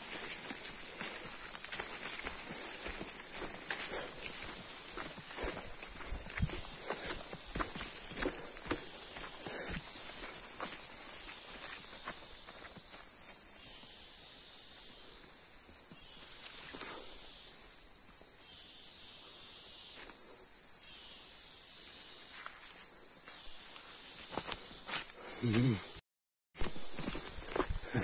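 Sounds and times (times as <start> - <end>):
footsteps on forest path: 0.0 - 13.5, 22.3 - 25.9, 26.6 - 28.0
insects buzzing high-pitched: 0.0 - 26.0, 26.6 - 28.0.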